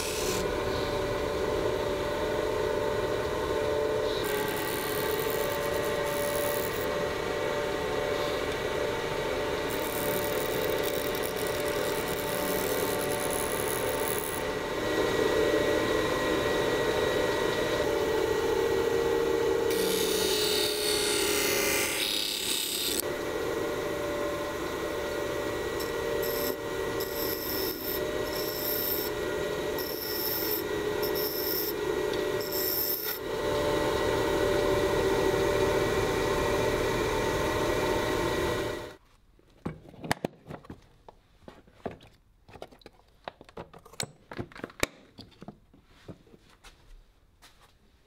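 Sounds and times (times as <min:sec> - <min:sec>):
bench grinder motor hum: 0:00.0 - 0:39.0
tools clicking and knocking: 0:41.9 - 0:45.8.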